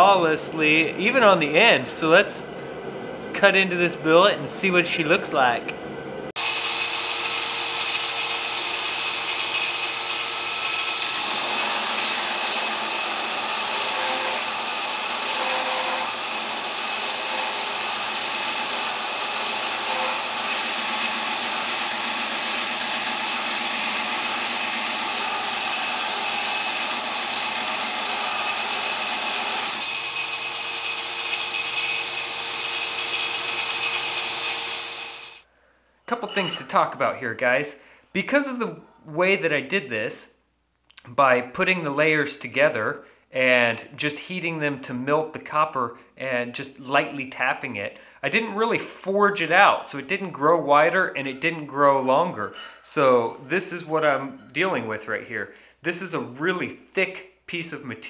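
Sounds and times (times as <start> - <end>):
belt grinder running: 6.4 - 35.4
loud steel grinding: 6.4 - 35.4.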